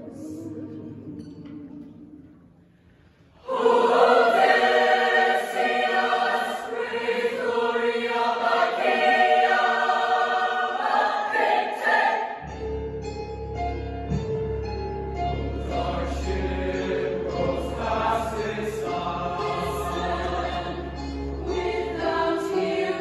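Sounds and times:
choir singing in harmony: 3.3 - 12.8, 15.0 - 23.0
low bass line: 12.4 - 22.4.

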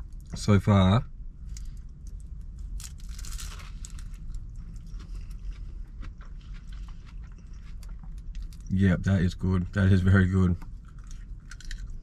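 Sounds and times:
crunchy chewing: 1.5 - 8.7, 10.6 - 12.0.

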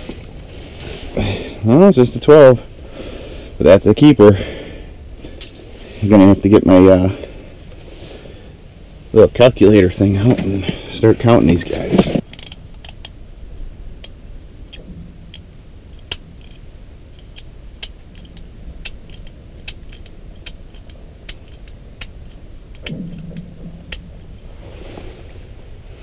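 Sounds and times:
low steady rumble: 0.0 - 26.0.

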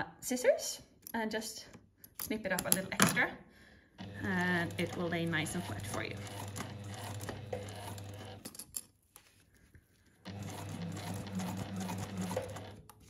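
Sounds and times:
electric sewing machine stitching: 4.0 - 8.5, 10.3 - 13.0.

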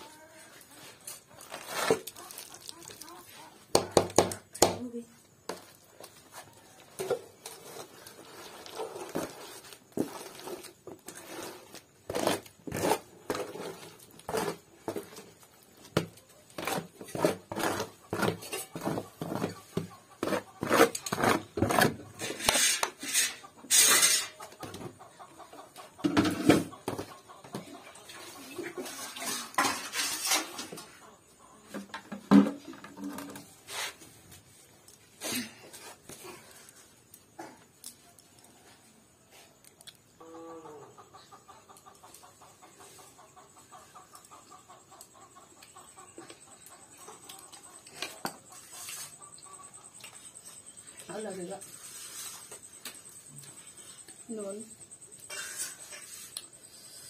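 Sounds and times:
steel ladle clinking and scraping: 22.2 - 24.4, 28.8 - 30.7, 55.2 - 56.5.

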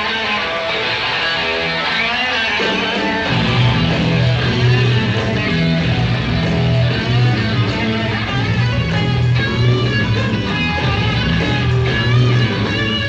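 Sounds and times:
electric guitar: 0.0 - 13.0
live rock band: 0.0 - 13.0
heavy bass line: 3.0 - 13.0.

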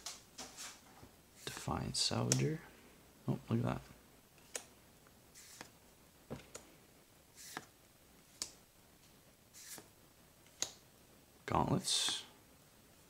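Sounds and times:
cards flicking and sliding: 4.4 - 4.7, 5.4 - 5.8, 7.4 - 7.8, 9.5 - 10.8.

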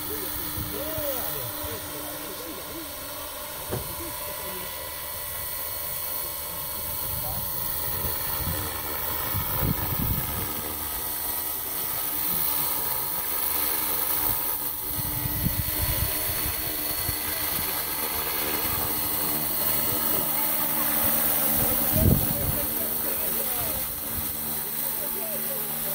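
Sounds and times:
model helicopter rotor whine: 0.0 - 25.9
wind rumble on microphone: 7.1 - 10.6, 21.6 - 22.7.

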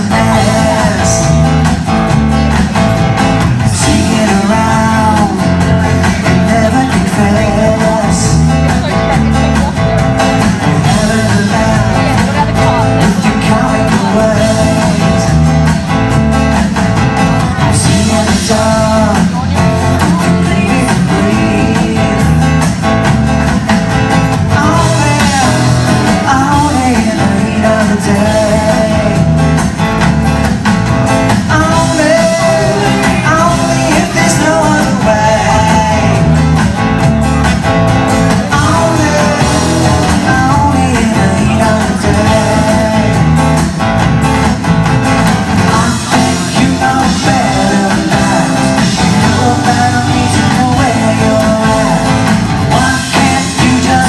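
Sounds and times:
person singing: 0.0 - 2.1, 3.5 - 23.1, 24.3 - 29.8, 31.2 - 37.1, 38.1 - 43.8, 45.2 - 54.0
live rock band playing: 0.0 - 54.0.

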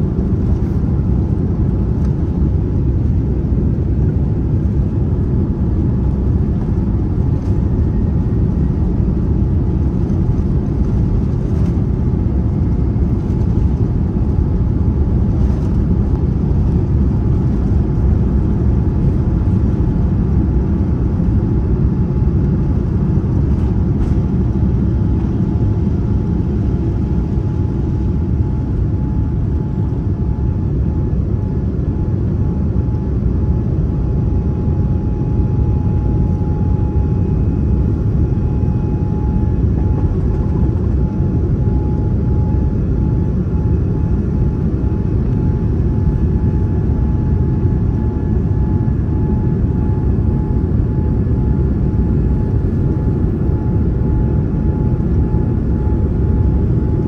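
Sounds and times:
airliner cabin engine rumble: 0.0 - 57.0.

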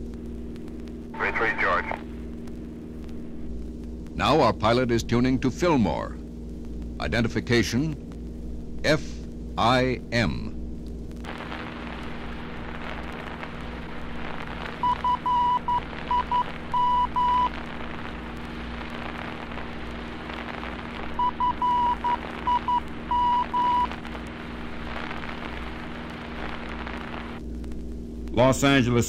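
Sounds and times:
radio static hiss: 0.0 - 29.0
steady hum: 0.0 - 29.0
morse code tone: 14.8 - 17.6, 21.2 - 23.9.

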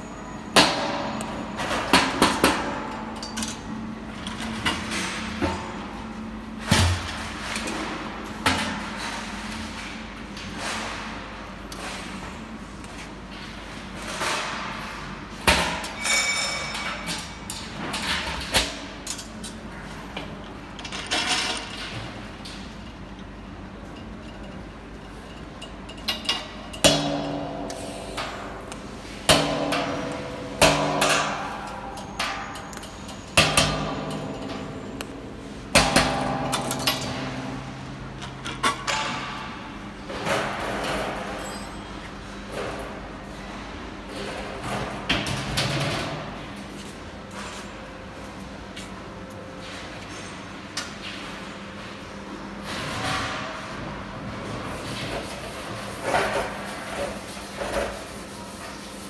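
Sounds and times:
hand tool striking steel tank: 29.3 - 32.4.

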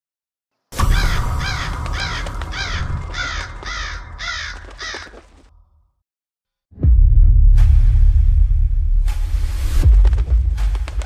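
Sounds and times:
crows cawing: 0.8 - 5.5.

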